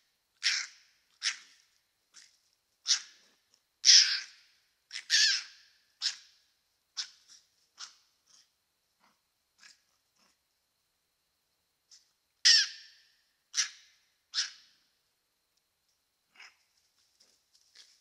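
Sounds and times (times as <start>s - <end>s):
harsh animal calls: 0.4s - 1.5s.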